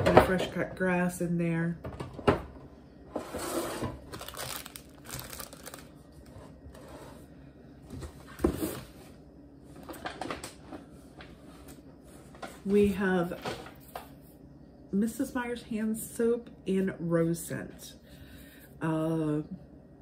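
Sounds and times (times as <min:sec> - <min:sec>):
packaging rustling and crinkling: 0:03.7 - 0:06.5.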